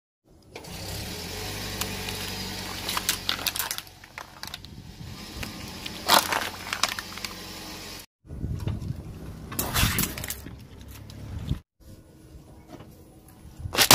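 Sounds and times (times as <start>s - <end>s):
tyre crushing plastic and foil: 1.7s - 7.6s, 9.6s - 11.1s.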